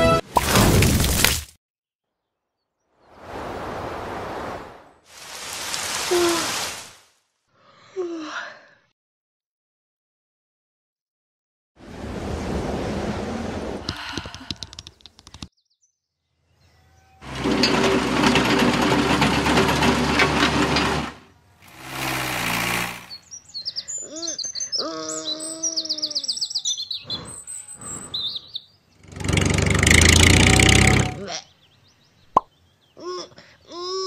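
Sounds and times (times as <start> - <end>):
wind gust: 3.0 - 6.9, 11.8 - 13.9
machine passing with mechanical noise: 17.2 - 23.3
loud rushing noise: 21.7 - 23.2
birds chirping: 21.7 - 29.5, 30.1 - 33.7.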